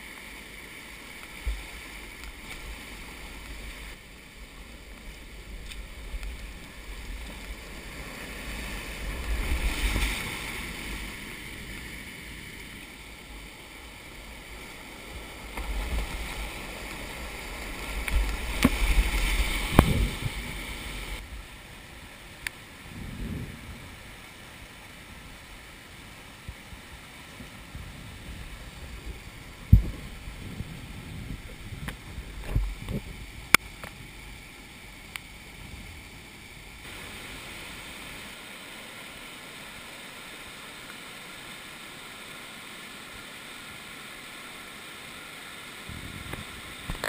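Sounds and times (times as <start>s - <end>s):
whitewater rapids rushing: 0.0s - 22.9s, 36.2s - 47.0s
wind buffeting microphone: 15.7s - 21.2s, 26.5s - 33.5s, 45.9s - 47.0s.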